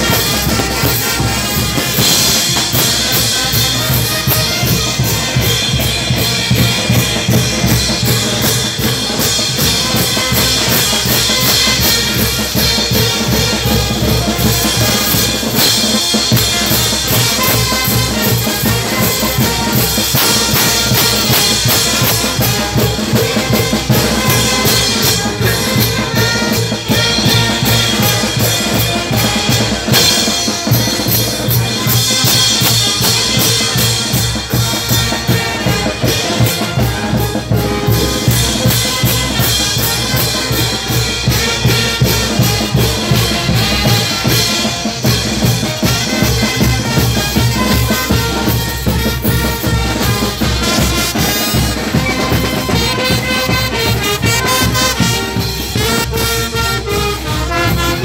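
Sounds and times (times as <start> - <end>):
bass drum: 0.0 - 58.0
street band music: 0.0 - 58.0.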